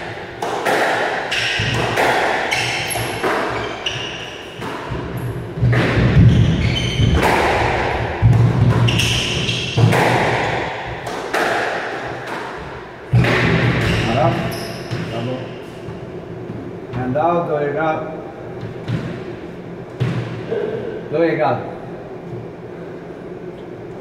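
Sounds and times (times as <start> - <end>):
ball hitting walls: 0.0 - 16.7, 18.6 - 20.6
racket hitting squash ball: 0.0 - 17.0, 18.5 - 21.0
shoes squeaking on wooden floor: 2.5 - 7.4, 8.7 - 10.1.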